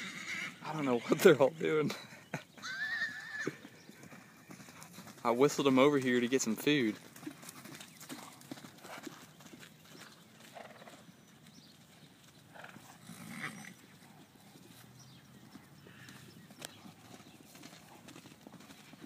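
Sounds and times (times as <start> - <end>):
horse calling: 0.0 - 5.6, 15.0 - 17.4
horses galloping on grass: 0.0 - 19.0.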